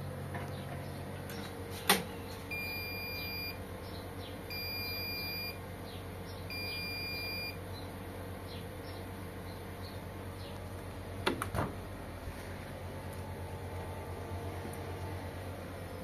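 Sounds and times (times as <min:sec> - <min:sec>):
low steady hum: 0:00.0 - 0:16.0
washing machine beeps: 0:02.5 - 0:03.6, 0:04.5 - 0:05.6, 0:06.5 - 0:07.6.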